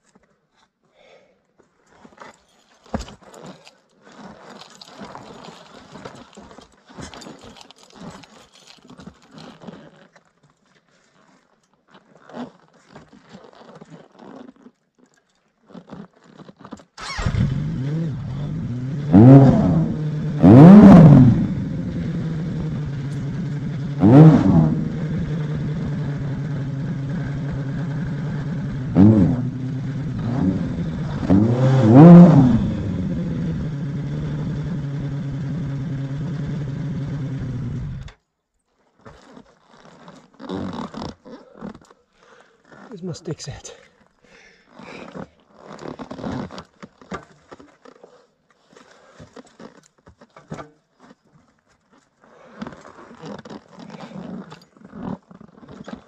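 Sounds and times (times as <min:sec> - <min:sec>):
motorcycle engine revving: 0:17.0 - 0:38.2
motorcycle engine starting and idling: 0:17.0 - 0:38.2.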